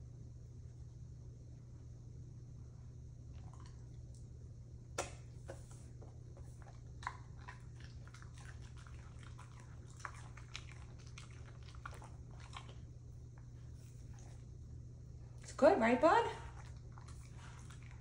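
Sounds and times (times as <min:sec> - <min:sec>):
steady low hum: 0:00.0 - 0:18.0
dogs chewing leaves: 0:06.4 - 0:14.5, 0:16.4 - 0:18.0.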